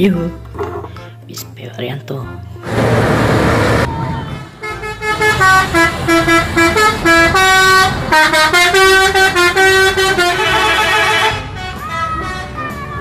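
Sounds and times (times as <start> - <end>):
bus musical air horn: 2.7 - 13.0.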